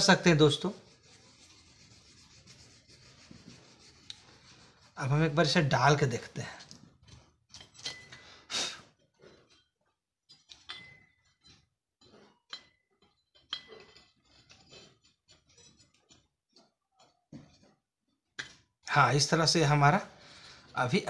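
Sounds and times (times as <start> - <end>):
metal parts clicking and scraping: 6.6 - 17.8.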